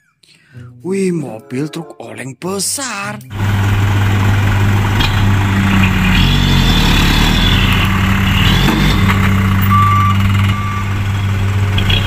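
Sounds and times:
truck engine running: 3.3 - 12.0.

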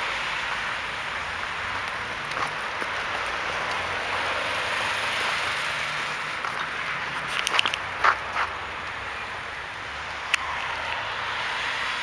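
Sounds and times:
road traffic hiss: 0.0 - 12.0
footsteps crunching in snow: 4.9 - 8.6.

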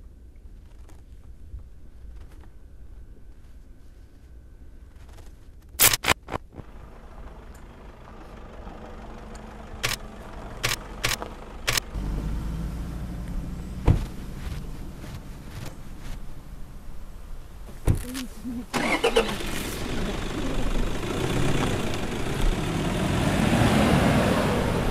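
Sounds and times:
sharp clicks: 5.7 - 6.5, 9.3 - 12.0
pickup engine starting and rumbling: 6.0 - 24.9.

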